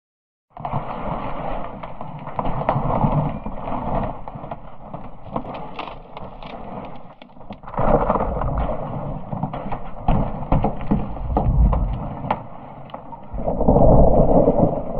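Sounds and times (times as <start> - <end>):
ice crackling and snapping: 1.9 - 14.9
iceberg collapsing roar: 5.3 - 14.9.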